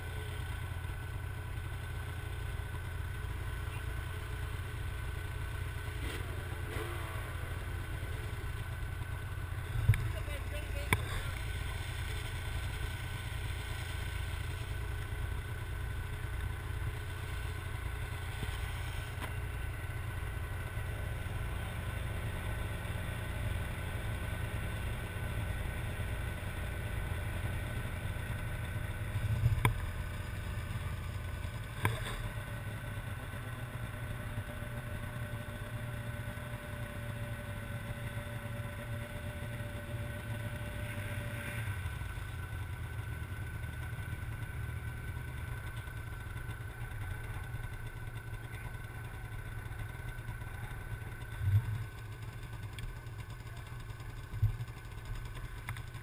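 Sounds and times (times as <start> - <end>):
snowmobile engine idling: 0.0 - 56.0.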